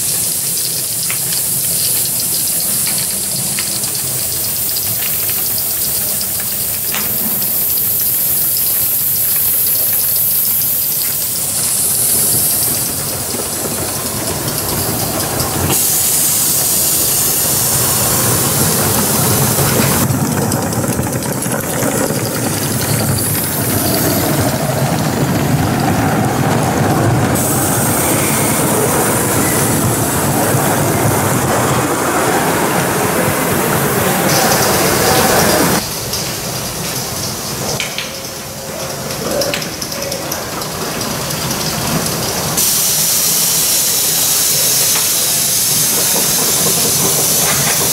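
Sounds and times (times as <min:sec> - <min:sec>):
steam hissing: 0:00.0 - 0:47.9
wheels running on track: 0:00.0 - 0:47.9.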